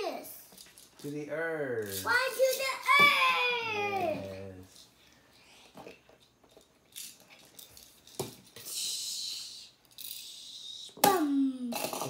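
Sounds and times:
child's voice: 0.0 - 0.5, 2.0 - 4.5, 11.0 - 11.8
hissing noises: 8.5 - 11.1.

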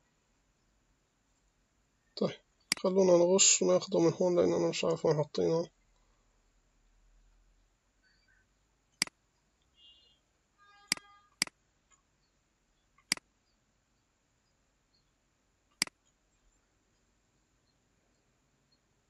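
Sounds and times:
computer mouse clicks: 10.9 - 12.0.

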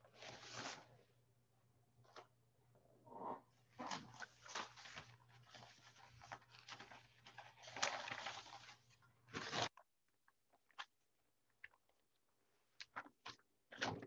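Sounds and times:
irregular crackling and rustling: 3.2 - 14.0.

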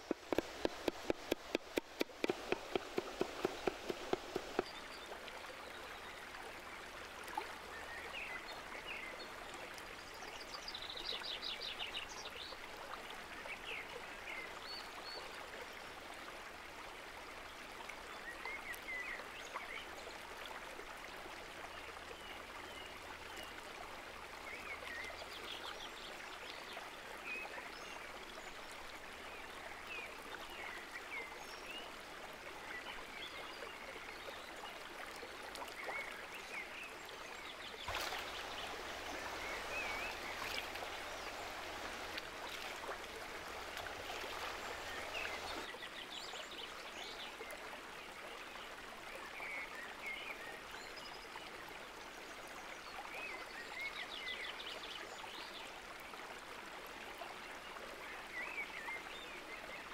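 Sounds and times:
creek rushing over stones: 0.0 - 14.4, 34.8 - 47.6.

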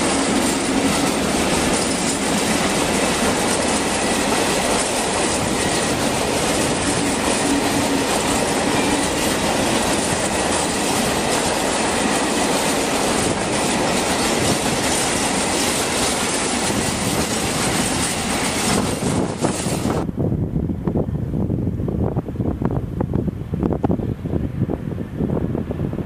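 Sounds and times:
train wheels clattering over rails: 0.0 - 20.1
faint high wheel squeal: 3.0 - 9.2.

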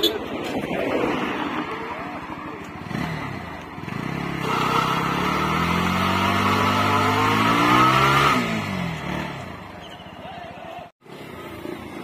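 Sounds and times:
motorcycle engine revving: 2.6 - 9.9.

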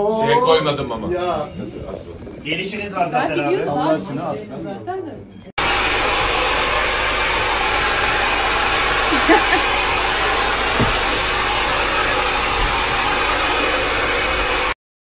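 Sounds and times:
hair dryer blowing: 5.6 - 14.8.

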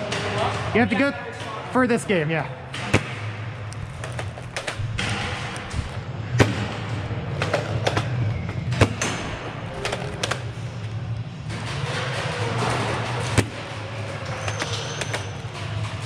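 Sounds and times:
steady low hum: 2.1 - 14.4.

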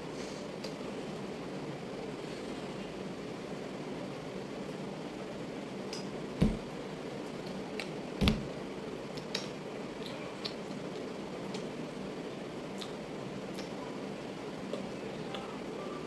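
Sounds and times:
room hiss: 0.0 - 10.0
dull thumps: 6.4 - 6.7, 8.2 - 8.5.

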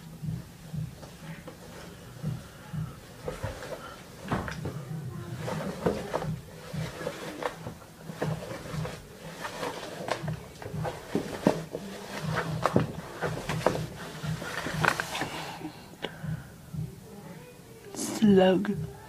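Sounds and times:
person crawling on hardwood floor: 0.9 - 4.8, 5.4 - 15.4.

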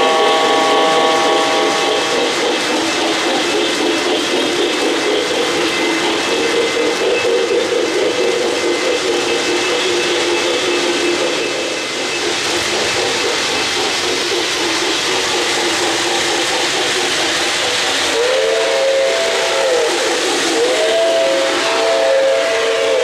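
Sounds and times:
two-note train whistle: 0.0 - 2.4, 18.1 - 23.0
model train wheels hissing: 0.0 - 23.0.

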